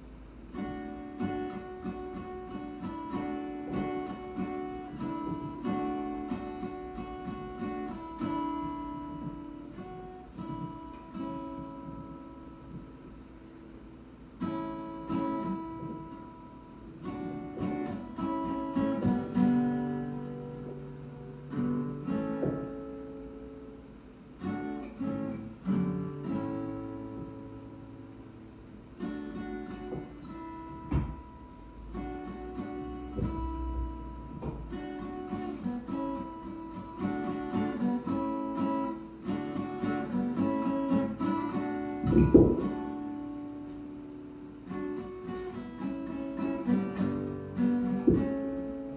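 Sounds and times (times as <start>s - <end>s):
acoustic guitar playing: 0.0s - 48.9s
sharp low thump: 42.0s - 42.7s.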